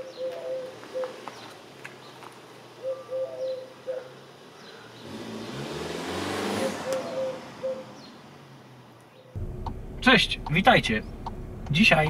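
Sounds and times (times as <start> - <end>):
birds chirping: 0.0 - 12.0
car driving past: 5.0 - 12.0.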